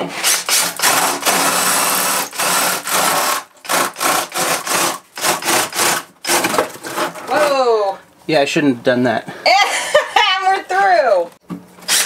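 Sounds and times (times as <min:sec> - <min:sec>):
cordless drill boring wood: 0:00.2 - 0:06.6.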